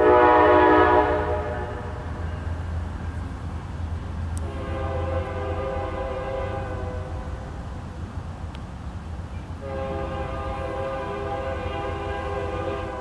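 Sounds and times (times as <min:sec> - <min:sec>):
train horn chord: 0:00.0 - 0:02.3, 0:04.4 - 0:07.4, 0:09.6 - 0:13.0.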